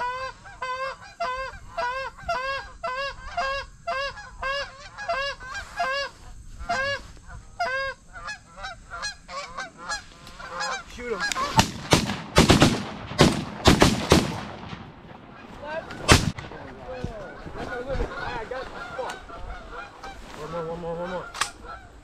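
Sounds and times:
geese honking: 0.0s - 12.1s, 15.2s - 22.0s
shotgun blasts: 11.4s - 15.4s, 16.0s - 16.6s.

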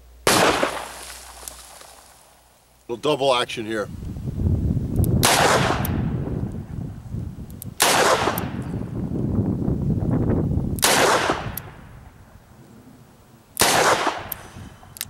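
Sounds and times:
revolver shots with echo: 13.6s - 14.4s.

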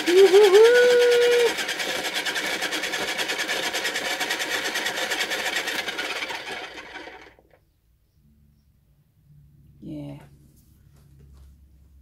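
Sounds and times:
pottery wheel motor whirring: 0.0s - 7.6s.

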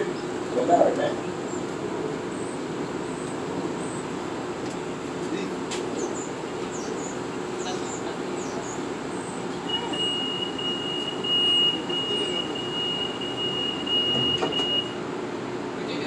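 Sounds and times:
train rumble from inside: 0.0s - 10.5s
high-pitched tone: 9.7s - 14.9s.

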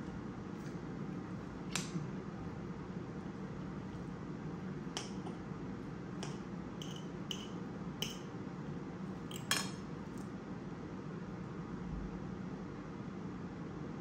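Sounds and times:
cutlery clinking on ceramic bowl: 6.2s - 8.3s, 9.3s - 9.8s.

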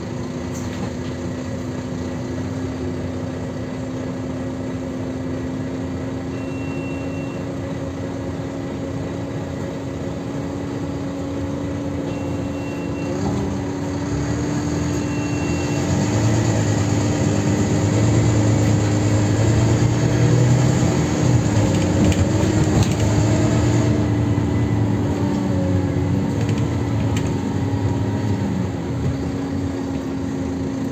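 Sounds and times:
bus diesel engine running: 0.0s - 30.9s
short high beeps: 6.3s - 7.5s, 12.1s - 13.2s, 15.0s - 15.9s.

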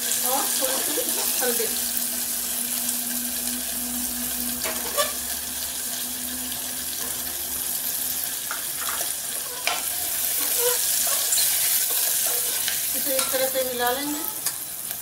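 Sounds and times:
vegetables sizzling in oil: 0.0s - 15.0s.

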